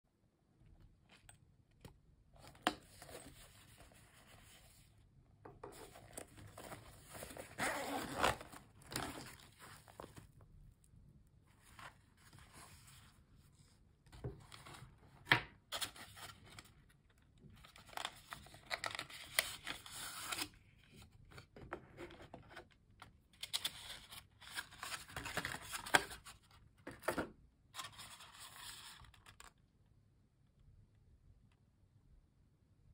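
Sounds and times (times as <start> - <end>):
packaging scraping and rustling: 5.7 - 10.3.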